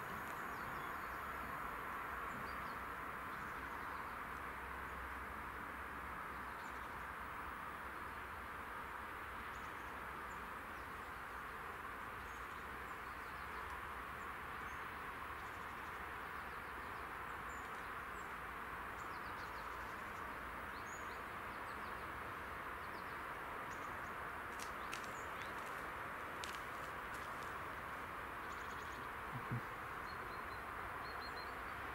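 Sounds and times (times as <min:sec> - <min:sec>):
steady background hiss: 0:00.0 - 0:31.9
faint bird chirps: 0:28.4 - 0:31.8.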